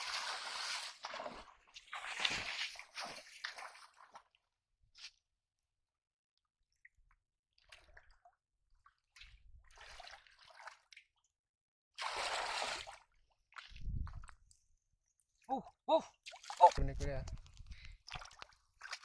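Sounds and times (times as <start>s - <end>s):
hands splashing in muddy water: 17.8s - 19.0s.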